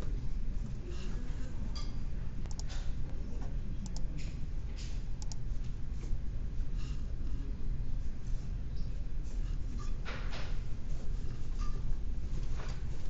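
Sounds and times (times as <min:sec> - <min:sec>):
mouse and keyboard clicks: 0:02.4 - 0:02.9, 0:03.8 - 0:05.4.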